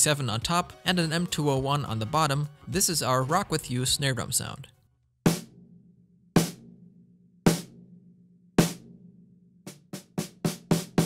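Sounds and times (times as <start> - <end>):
dry snare drum strokes: 6.4 - 6.6, 7.5 - 7.7, 9.7 - 11.0.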